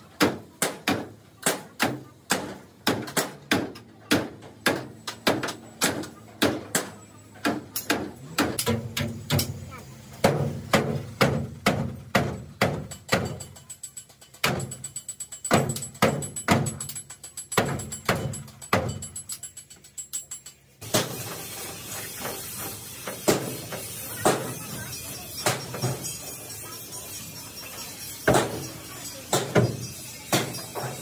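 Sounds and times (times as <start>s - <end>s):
steady hiss: 20.8s - 31.0s
sharp ringing strikes: 22.2s - 31.0s.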